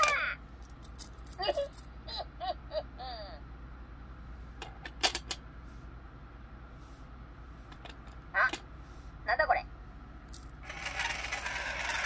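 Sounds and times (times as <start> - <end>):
coin clicking on plastic coins: 10.3 - 12.0.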